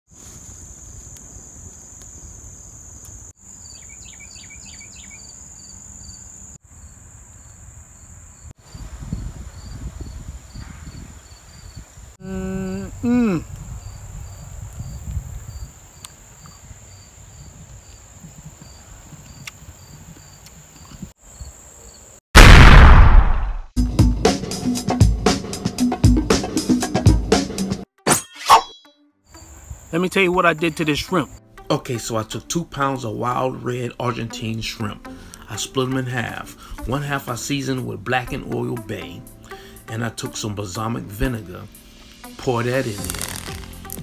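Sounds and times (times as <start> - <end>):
man humming mmm: 12.2 - 13.6.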